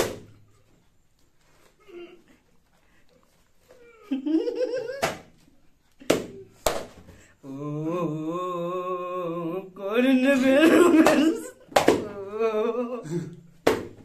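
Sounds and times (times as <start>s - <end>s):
sharp smacks: 0.0s - 0.4s, 5.0s - 5.3s, 6.0s - 7.1s, 13.6s - 14.0s.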